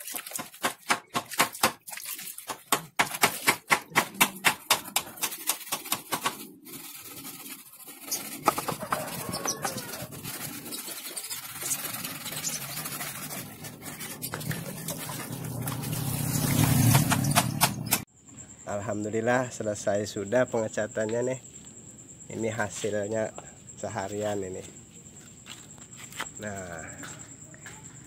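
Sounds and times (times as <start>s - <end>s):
hand rubbing soapy foam: 5.2s - 17.3s.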